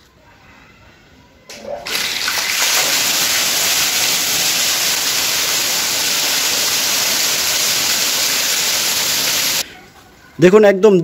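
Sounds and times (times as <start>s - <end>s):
water jet splashing into tank: 1.8s - 9.6s.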